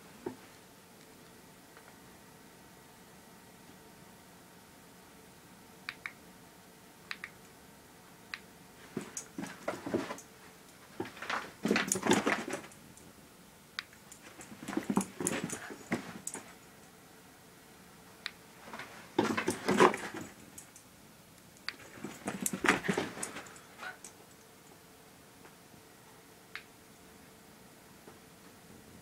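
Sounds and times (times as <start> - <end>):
sharp clicks: 5.9 - 6.2, 7.1 - 7.5
dog scrambling on carpet: 8.9 - 10.2, 11.0 - 12.7, 14.2 - 16.5, 18.7 - 20.4, 21.8 - 23.5.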